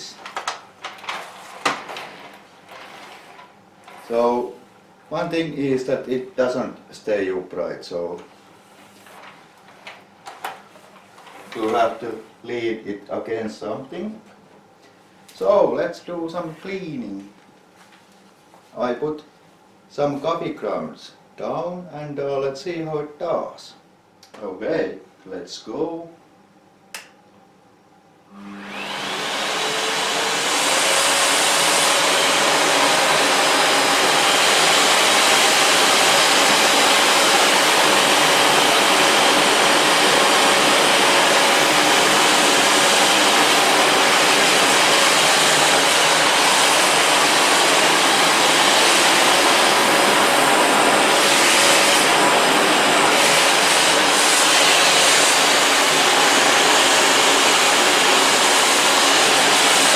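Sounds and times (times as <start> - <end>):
vacuum cleaner motor running: 0.0 - 4.6, 28.3 - 59.9.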